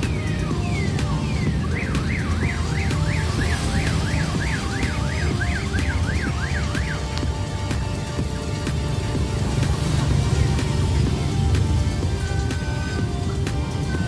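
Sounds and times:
background music: 0:00.0 - 0:14.0
electronic siren yelping: 0:00.0 - 0:14.0.

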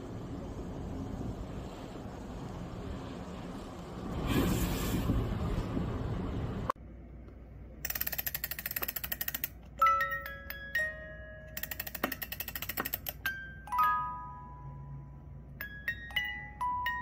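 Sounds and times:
street traffic: 0:00.0 - 0:06.8
wind noise: 0:00.8 - 0:06.7
music box mechanism clicking: 0:07.8 - 0:10.6, 0:11.5 - 0:13.4
music box tune: 0:09.0 - 0:17.0.

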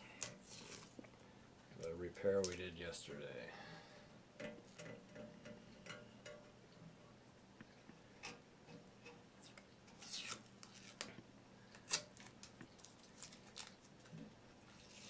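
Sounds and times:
tape peeling crackles and rips: 0:00.2 - 0:01.0, 0:09.4 - 0:15.0.

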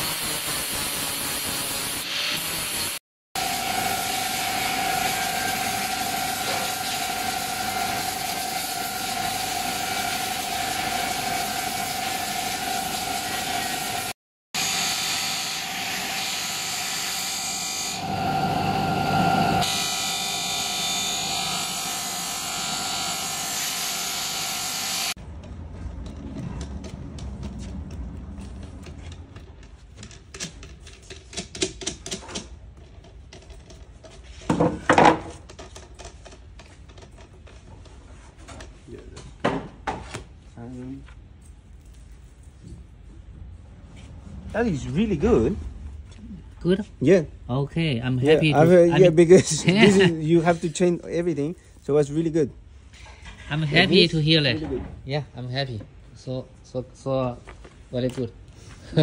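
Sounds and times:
bench grinder polishing steel: 0:00.0 - 0:17.2.

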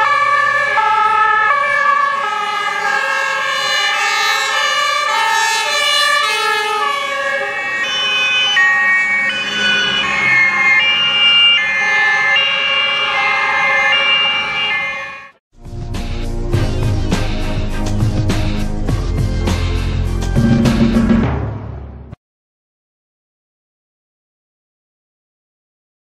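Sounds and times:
two-tone fire sirens: 0:00.0 - 0:15.4.

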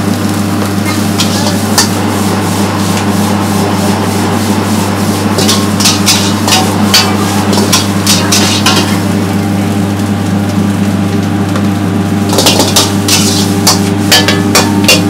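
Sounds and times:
steady low hum: 0:00.0 - 0:15.0
metal ladle scraping a wok: 0:00.9 - 0:03.9, 0:05.0 - 0:09.2, 0:12.3 - 0:15.0.

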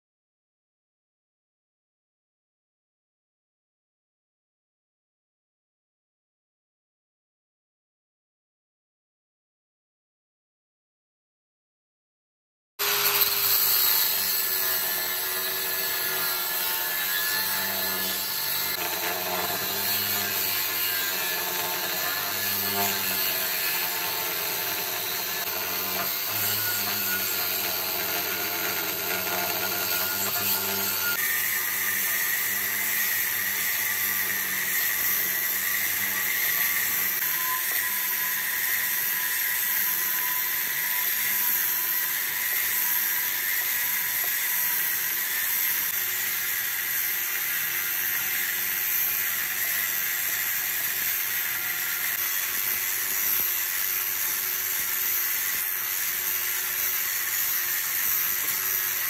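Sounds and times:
angle grinder cutting steel: 0:12.8 - 0:59.0.

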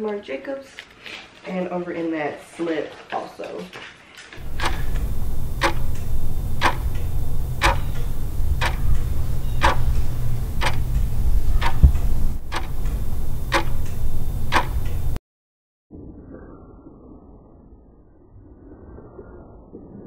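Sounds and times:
clock ticking: 0:04.4 - 0:15.2
steady low hum: 0:04.4 - 0:15.2.

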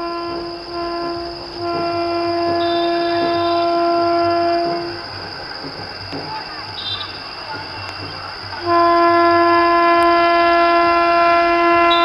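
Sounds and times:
locomotive horn blasts: 0:00.0 - 0:05.0, 0:08.6 - 0:12.0
low rumble of train: 0:00.0 - 0:12.0.

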